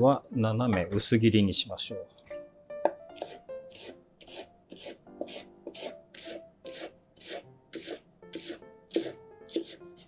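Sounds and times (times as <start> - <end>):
knife slicing on wooden board: 3.2 - 9.8.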